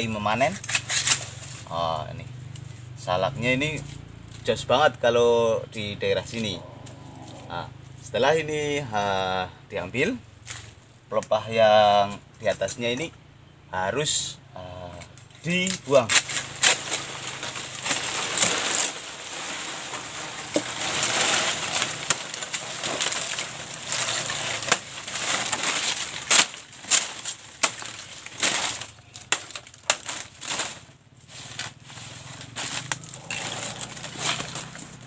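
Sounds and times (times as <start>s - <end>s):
sickle chopping fronds: 0.0s - 4.7s, 10.0s - 13.1s, 14.9s - 35.0s
dry leaves crackling rustle: 0.0s - 12.2s, 14.1s - 35.0s
stems snapping: 0.5s - 1.7s, 14.8s - 35.0s.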